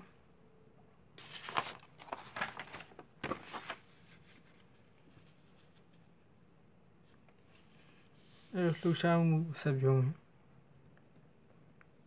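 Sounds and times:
paper rustling and crinkling: 1.2s - 6.1s.

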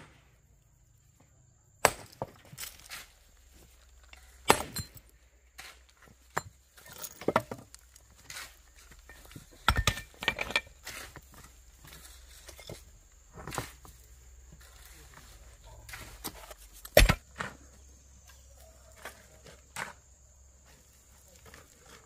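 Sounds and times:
rocks knocking and clinking: 3.9s - 14.0s, 15.9s - 17.5s.

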